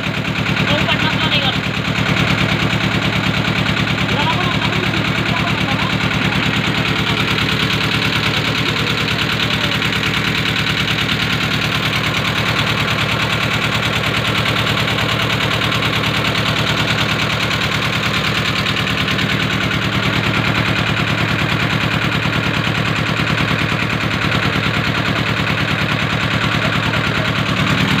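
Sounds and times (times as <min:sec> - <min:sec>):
boat engine pulsing: 0:00.0 - 0:28.0.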